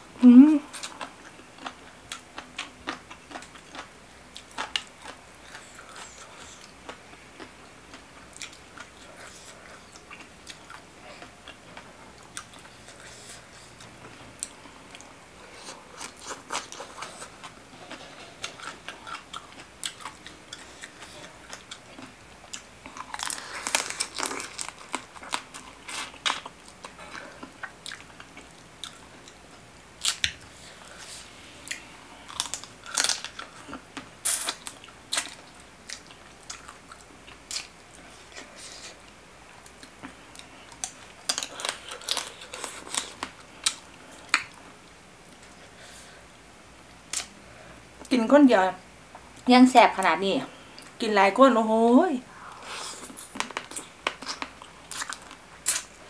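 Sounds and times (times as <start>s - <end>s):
chewing: 0.7s - 44.7s, 52.5s - 55.9s.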